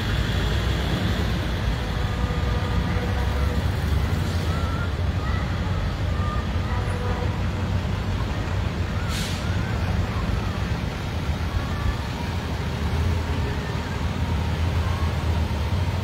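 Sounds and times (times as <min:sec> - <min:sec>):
truck engines rumbling: 0:00.0 - 0:16.0
air brake hiss: 0:09.0 - 0:09.6.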